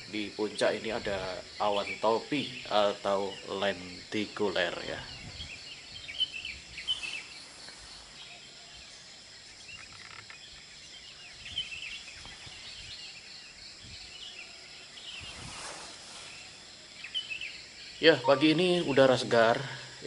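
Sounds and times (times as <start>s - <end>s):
birds chirping: 0.0s - 20.0s
high-pitched insect drone: 17.5s - 20.0s.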